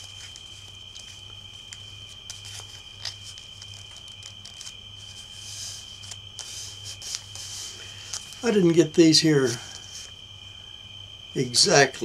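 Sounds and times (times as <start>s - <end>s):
small ticks: 0.0s - 8.4s
paper crinkling: 0.0s - 10.1s
paper rustle: 0.0s - 10.1s.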